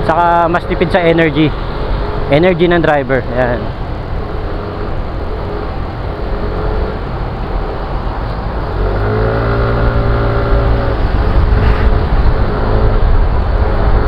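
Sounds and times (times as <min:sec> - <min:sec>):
scooter engine rumble: 0:03.2 - 0:14.0.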